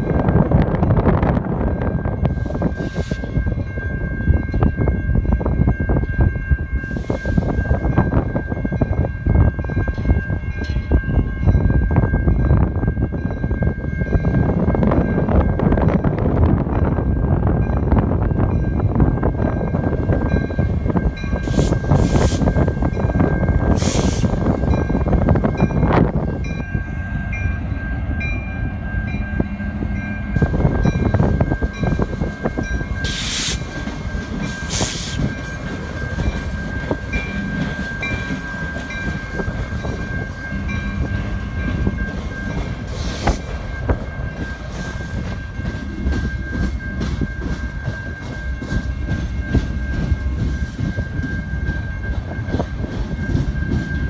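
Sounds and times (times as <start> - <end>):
crossing warning bell: 0.0 - 54.0
diesel locomotive passing: 0.0 - 54.0
railcars rumbling and clattering: 0.0 - 54.0
train screeching or hissing: 2.2 - 3.4, 6.8 - 7.8, 21.0 - 25.1, 30.0 - 51.6.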